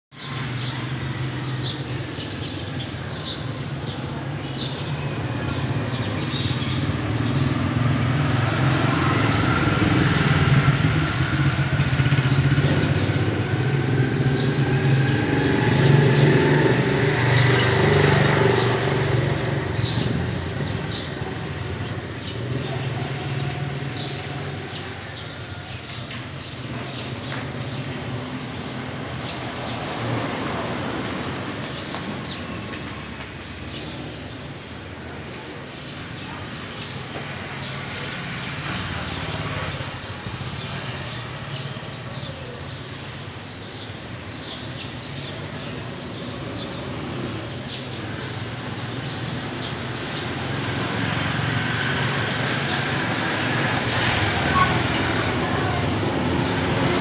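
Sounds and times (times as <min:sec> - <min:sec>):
vehicle engine droning: 0:00.3 - 0:42.1.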